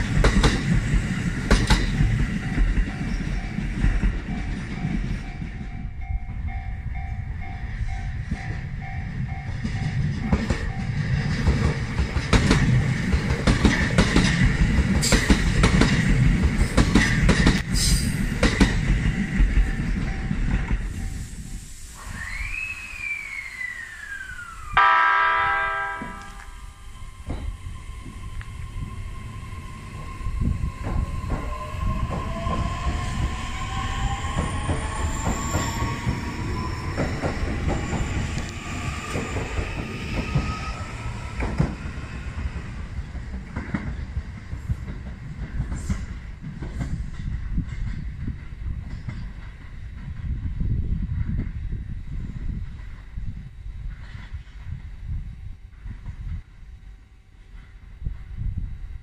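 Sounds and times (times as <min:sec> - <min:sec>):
train rolling rumble: 0:00.0 - 0:59.0
wheels clicking on rail joints: 0:09.2 - 0:21.2
train motor whine: 0:20.8 - 0:43.2
loud multi-tone horn blast: 0:24.8 - 0:26.6.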